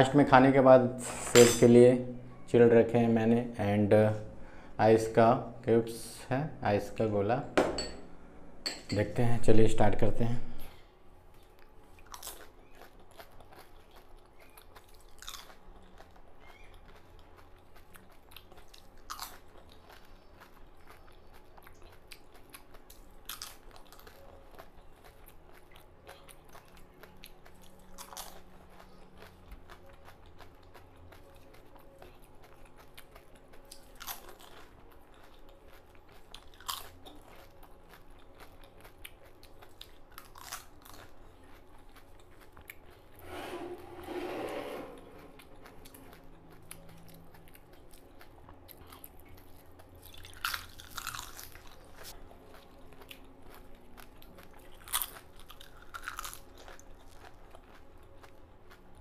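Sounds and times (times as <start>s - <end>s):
quiet chewing: 11.2s - 43.7s, 45.0s - 59.0s
crisp food crunching: 11.4s - 43.2s, 45.3s - 59.0s.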